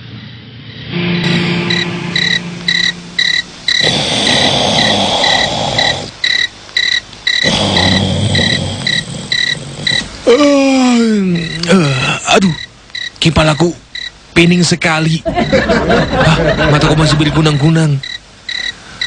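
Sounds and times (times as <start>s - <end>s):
rushing noise: 0.0s - 6.3s
crickets chirping: 0.0s - 19.0s.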